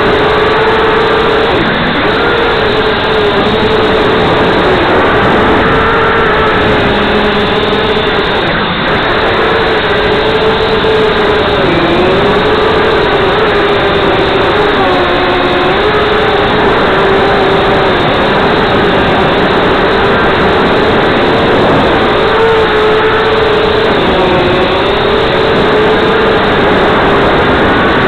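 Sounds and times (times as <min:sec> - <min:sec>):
rushing air: 0:00.0 - 0:14.5
drone motors buzzing whine: 0:00.0 - 0:28.0.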